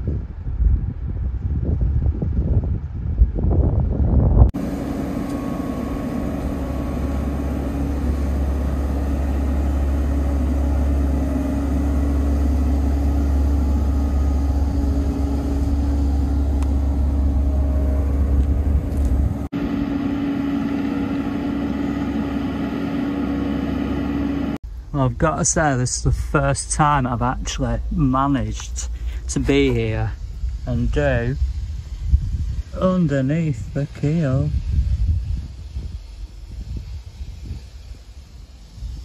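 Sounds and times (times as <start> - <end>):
low rumble: 0.0 - 32.8
engine hum: 3.0 - 31.6.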